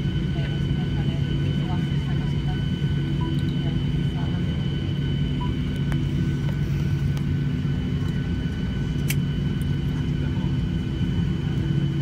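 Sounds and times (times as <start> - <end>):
airplane cabin hum: 0.0 - 12.0
small click: 9.0 - 9.7.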